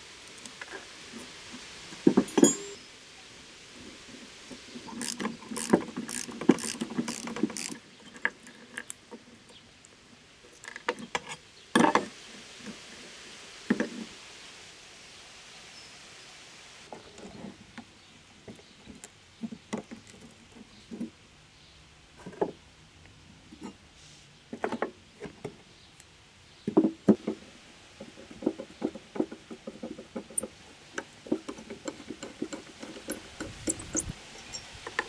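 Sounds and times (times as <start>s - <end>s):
hand tools clicking and tapping metal: 2.1s - 2.8s, 4.8s - 9.6s, 28.0s - 35.0s.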